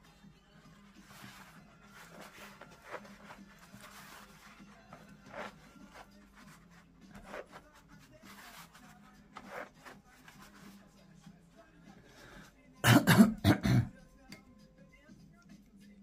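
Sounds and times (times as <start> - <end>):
paper towel rubbing and rustling: 0.7 - 10.9.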